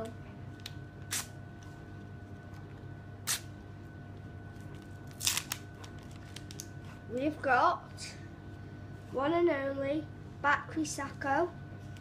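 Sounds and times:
faint steady hum: 0.0 - 12.0
wrapper tearing: 5.0 - 6.7.

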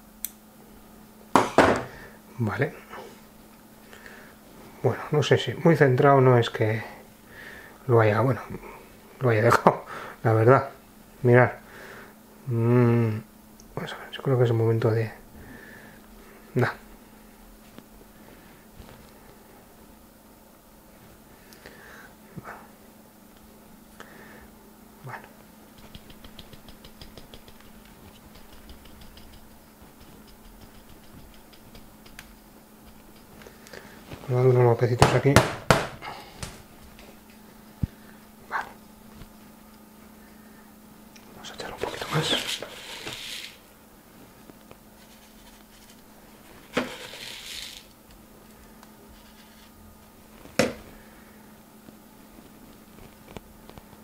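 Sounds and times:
gravel clicking in ceramic pot: 25.8 - 33.6
clay pot knocking: 35.0 - 36.0
gritty rustling of grains: 42.0 - 43.6, 46.6 - 47.9.

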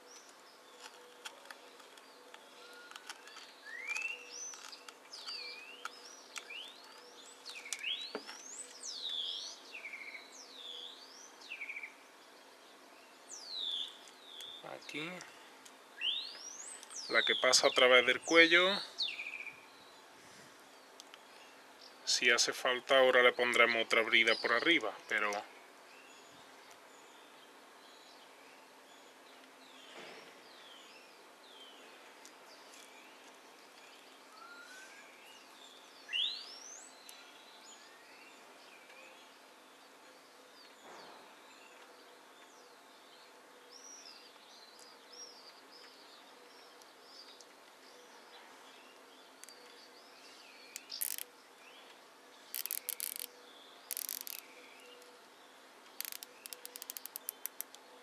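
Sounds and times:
small birds chirping: 0.0 - 58.0
cable ties ratcheting clicks: 50.8 - 51.3, 52.5 - 53.3, 53.9 - 54.4, 56.0 - 57.8.

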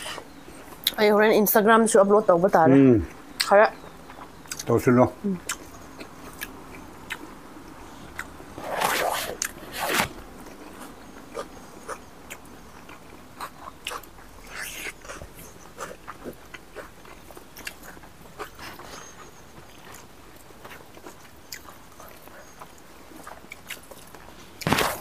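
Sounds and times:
close chewing with wet mouth clicks: 3.1 - 4.7, 5.4 - 7.3, 8.1 - 8.4, 10.5 - 24.3.

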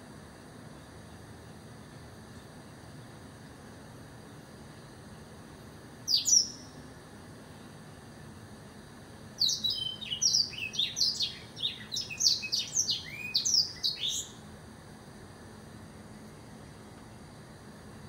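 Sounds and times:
canary singing high chirps: 6.1 - 6.8, 9.4 - 14.4.

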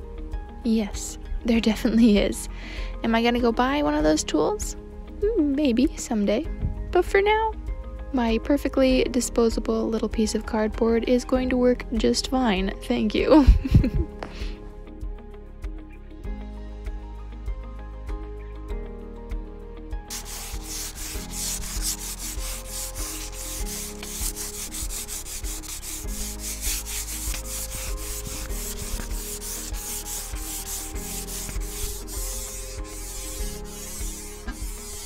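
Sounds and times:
sanding sponge scratching wood: 20.1 - 35.0.

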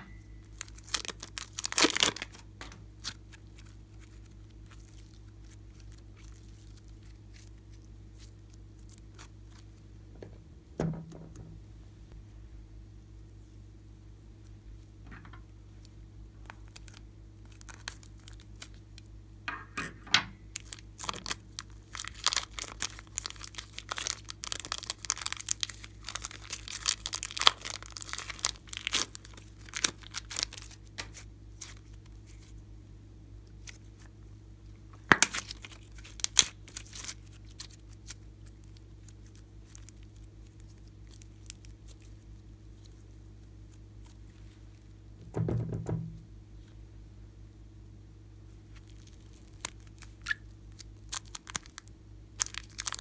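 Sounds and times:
plastic bag crinkling and tearing: 0.4 - 9.6, 16.4 - 19.1, 20.5 - 32.5, 35.0 - 42.2, 48.7 - 53.0
sticky slime crackling: 0.4 - 9.8, 15.8 - 19.1, 20.5 - 32.6, 33.5 - 34.1, 35.0 - 45.0, 48.7 - 53.0.

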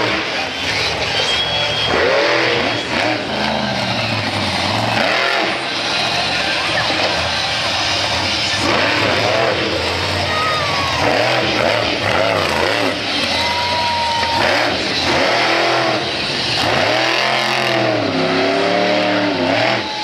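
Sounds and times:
monster truck engine revving: 0.0 - 20.0.

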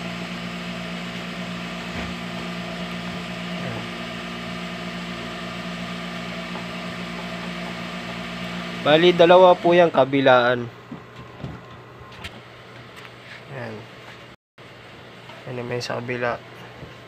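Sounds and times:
machine hum with low pulsing: 0.0 - 17.0.

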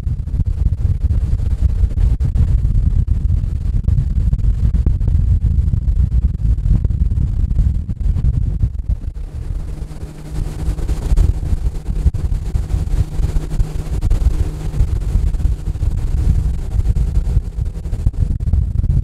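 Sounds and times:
wind buffeting microphone: 0.0 - 19.0
boat motor humming: 8.6 - 19.0.

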